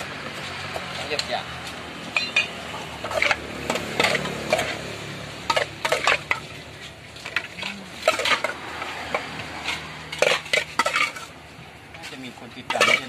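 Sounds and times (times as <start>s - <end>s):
metal spoon scraping a pot: 2.1s - 11.4s, 12.0s - 13.0s.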